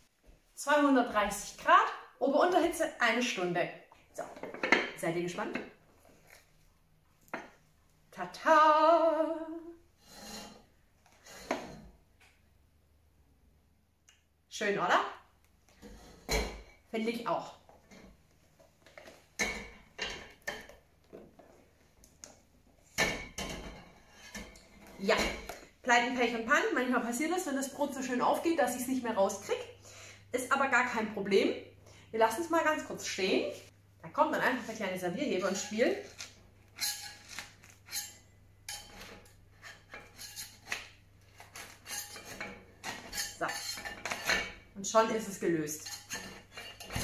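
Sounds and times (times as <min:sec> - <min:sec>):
metal lifter scraping stoneware: 0:35.4 - 0:40.8, 0:41.6 - 0:44.6, 0:45.8 - 0:47.0.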